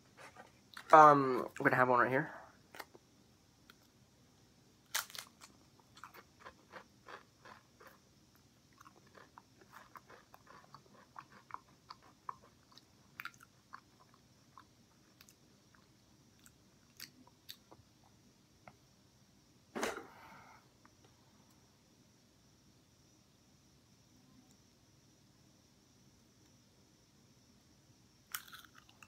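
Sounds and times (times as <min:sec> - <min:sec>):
potato chip crunching in mouth: 0:04.9 - 0:08.0, 0:08.8 - 0:13.8, 0:28.3 - 0:29.0.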